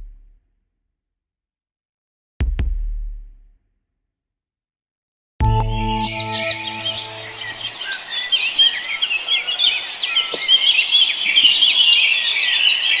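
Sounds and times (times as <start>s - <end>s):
held musical chord: 5.4s - 8.5s
small birds chirping and trilling: 6.0s - 13.0s.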